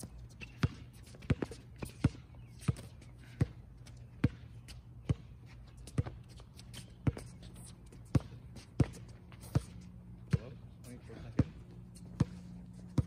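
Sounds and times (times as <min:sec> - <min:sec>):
basketball bouncing on hard court: 0:00.4 - 0:03.6, 0:04.2 - 0:04.4, 0:07.0 - 0:07.3, 0:08.1 - 0:10.6, 0:11.3 - 0:13.0.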